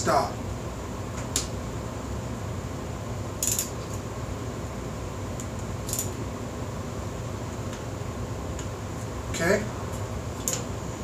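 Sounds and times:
torque wrench clicks: 0:03.4 - 0:03.7, 0:05.9 - 0:06.2.

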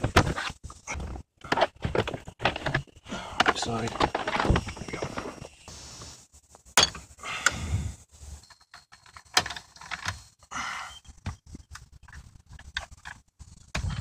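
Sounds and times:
scraping and rustling: 0:00.0 - 0:07.2.

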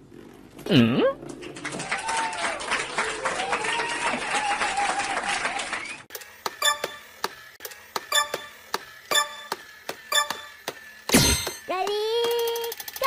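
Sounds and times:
rhythmic ticking clicks: 0:06.5 - 0:10.8, 0:11.7 - 0:13.0.

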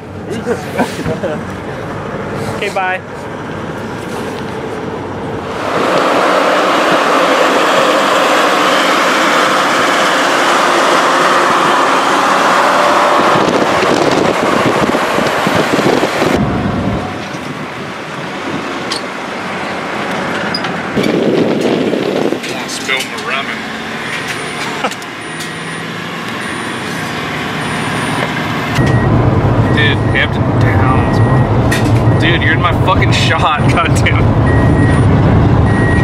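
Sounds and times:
vehicle road noise: 0:00.0 - 0:36.0
wind rushing over microphone: 0:04.5 - 0:18.9, 0:19.8 - 0:23.0, 0:28.8 - 0:36.0.

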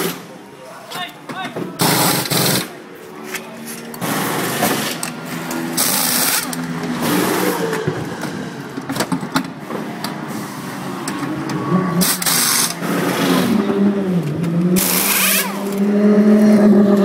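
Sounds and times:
pneumatic wheel guns rattling: 0:01.8 - 0:11.3, 0:12.0 - 0:13.6, 0:14.3 - 0:16.6
engine humming: 0:02.2 - 0:17.0.

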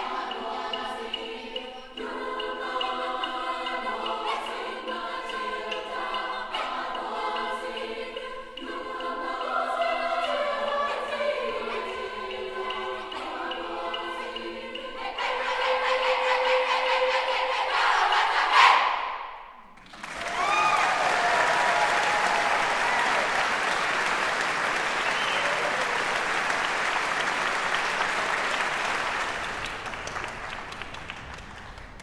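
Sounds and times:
choir singing a held chord: 0:00.0 - 0:19.3
audience applause: 0:19.8 - 0:32.0.

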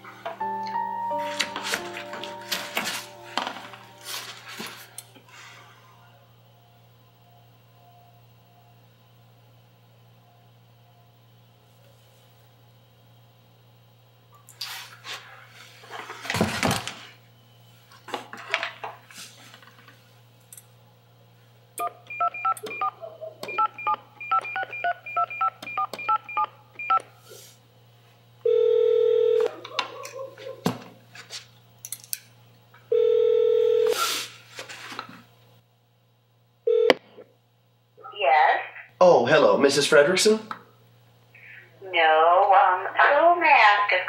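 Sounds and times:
keypad touch-tone beeps: 0:21.8 - 0:27.0
telephone ringback tones: 0:28.4 - 0:29.5, 0:32.9 - 0:34.0, 0:36.7 - 0:36.9.

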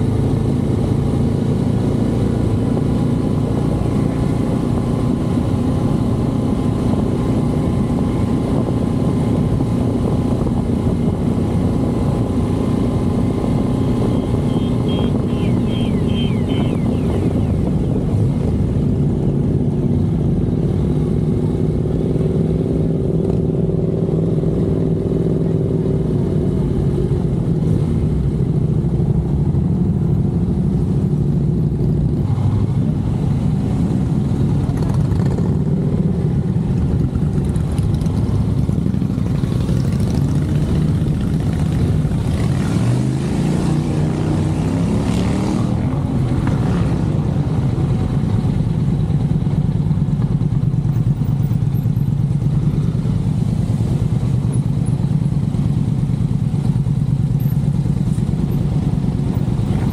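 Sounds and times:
motorcycle engine running: 0:00.0 - 0:32.0, 0:33.0 - 0:42.7, 0:46.0 - 0:59.9
wind and road noise: 0:00.0 - 0:59.9.

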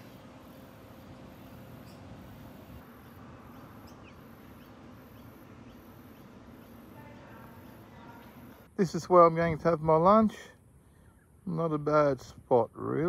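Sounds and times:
faint bird chirps: 0:00.0 - 0:08.7, 0:10.8 - 0:11.5
high insect buzz: 0:00.0 - 0:08.9.

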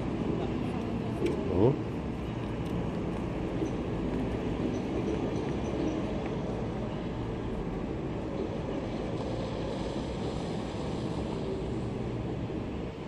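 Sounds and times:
low rumbling noise: 0:06.2 - 0:13.0.

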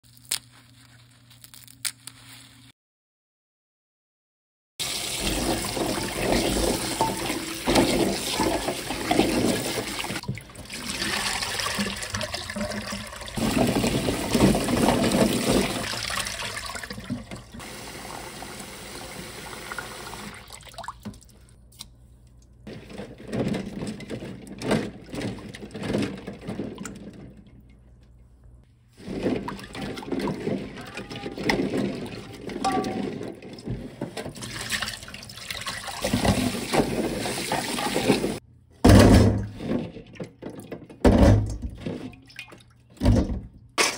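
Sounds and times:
tap water running into bowl: 0:04.8 - 0:21.2.

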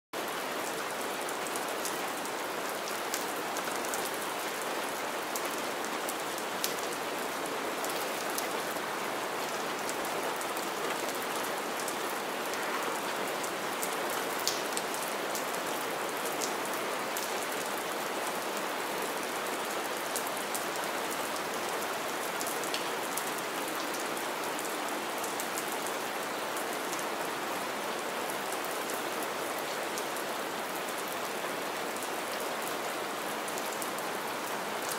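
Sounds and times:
steady rain on wet ground: 0:00.2 - 0:34.9
raindrops splashing close by: 0:13.8 - 0:15.5.

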